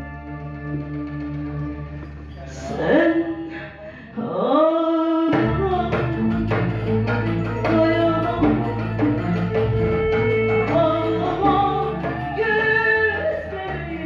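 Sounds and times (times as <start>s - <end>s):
saz ensemble playing: 0.0s - 2.6s, 5.5s - 13.0s
hand drum beat: 5.3s - 14.0s
woman singing long notes: 9.6s - 14.0s.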